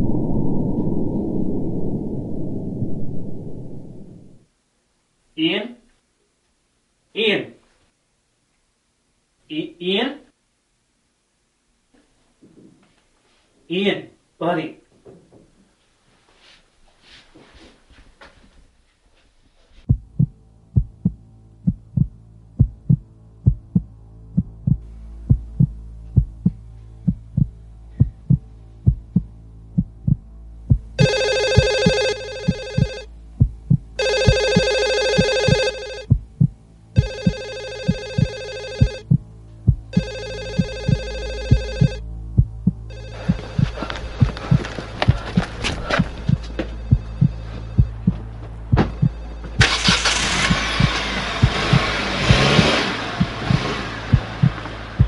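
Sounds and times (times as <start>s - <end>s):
low hum drone: 0.0s - 4.5s, 19.9s - 55.0s
heartbeat thumping: 19.9s - 49.7s, 50.4s - 55.0s
telephone ringing: 31.0s - 33.1s, 34.0s - 36.1s, 37.0s - 39.0s, 39.9s - 42.0s, 42.9s - 44.2s.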